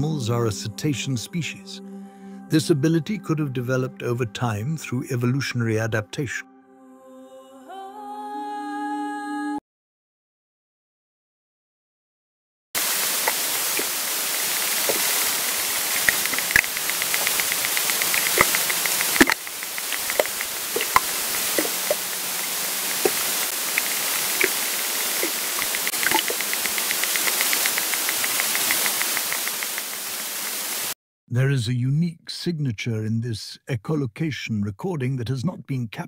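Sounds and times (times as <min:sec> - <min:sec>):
steady underwater hiss: 0:12.8 - 0:31.0
echolocation clicks: 0:14.7 - 0:30.1.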